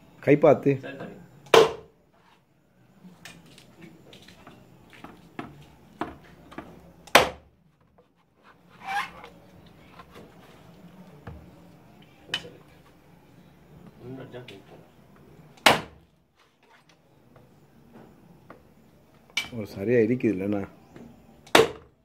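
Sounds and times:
machete chopping coconut: 1.5 - 1.9, 7.0 - 7.5, 15.6 - 16.0, 21.5 - 21.9.

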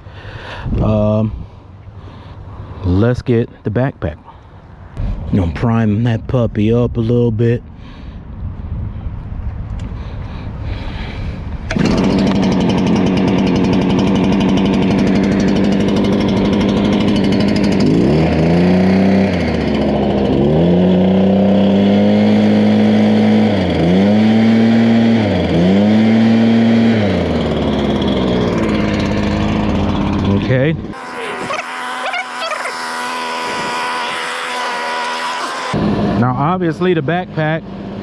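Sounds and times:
leaf blower engine running: 11.7 - 38.0.

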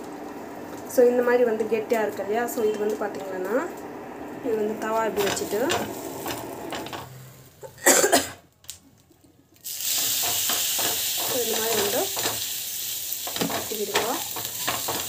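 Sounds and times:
oil sizzling on a hot pan: 9.6 - 15.0.

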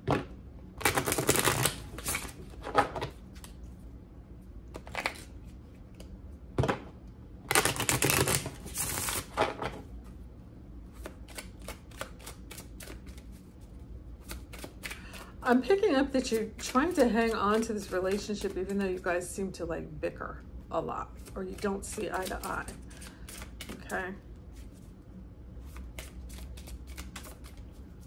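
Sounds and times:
cards being shuffled: 0.8 - 3.6, 4.7 - 6.1, 7.5 - 10.2, 10.9 - 19.1, 21.1 - 25.0, 25.6 - 28.0.

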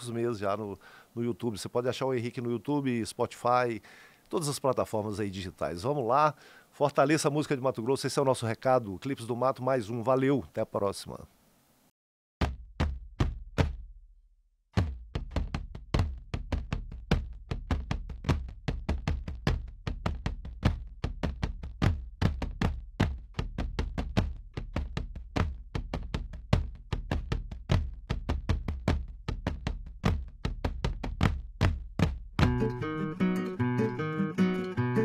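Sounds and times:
box drum struck with sticks: 12.4 - 13.9, 14.8 - 32.7.

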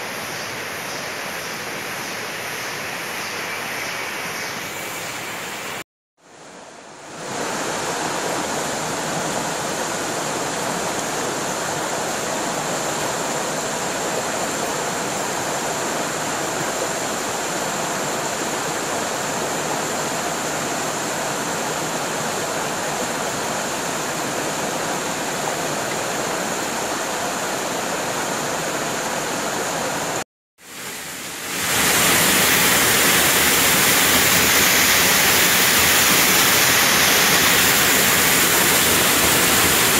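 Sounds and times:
stream running over rocks: 6.9 - 39.9
waterfall pouring into pool: 30.7 - 39.9.

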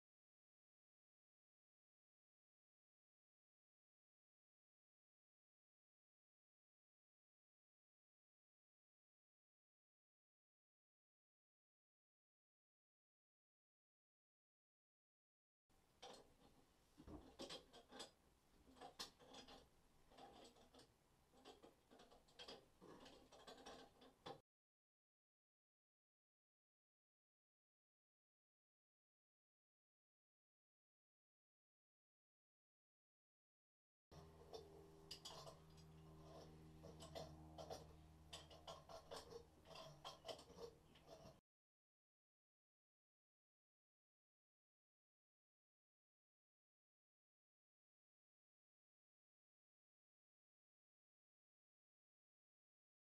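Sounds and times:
metallic clicks of pipe wrench: 16.0 - 24.4, 34.2 - 41.4
steady low hum: 34.2 - 41.4.

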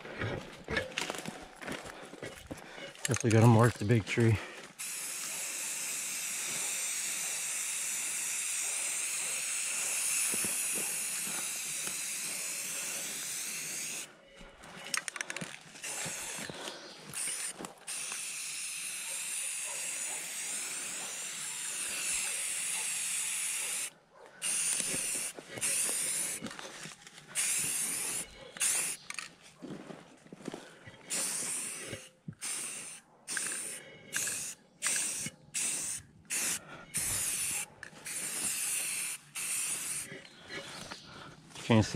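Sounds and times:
spray paint can hissing: 4.8 - 14.1, 15.8 - 26.5, 27.4 - 29.2, 31.1 - 40.1.

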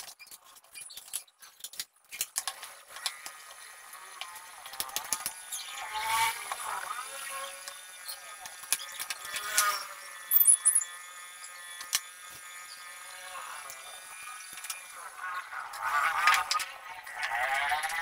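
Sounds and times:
short squeaks: 7.3 - 11.0.

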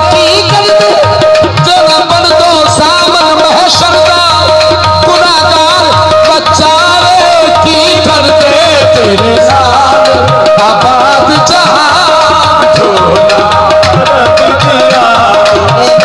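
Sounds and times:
harmonium notes: 0.0 - 16.0
tabla: 0.0 - 16.0
person singing wavering melody: 6.6 - 16.0.

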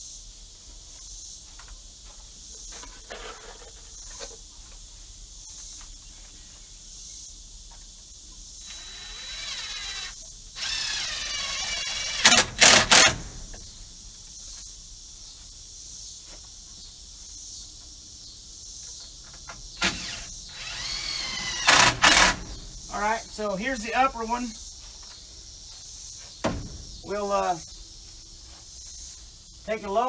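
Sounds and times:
cordless drill driving screws: 8.6 - 13.6, 19.8 - 22.8.

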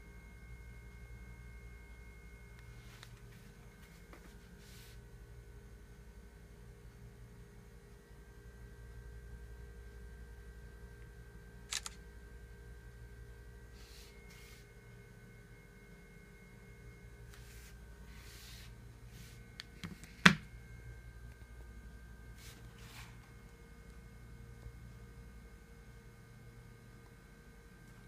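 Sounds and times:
faint hum: 0.0 - 28.0
phone camera shutter click: 11.7 - 12.0.

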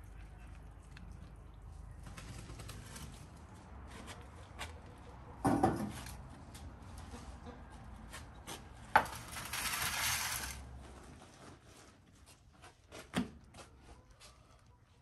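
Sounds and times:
metal tray clatter: 9.0 - 10.6.

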